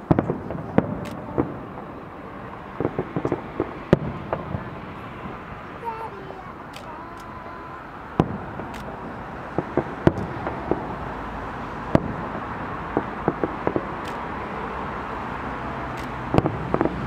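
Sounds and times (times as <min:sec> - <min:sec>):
background noise: 0:00.0 - 0:17.0
fireworks bursting: 0:00.0 - 0:17.0.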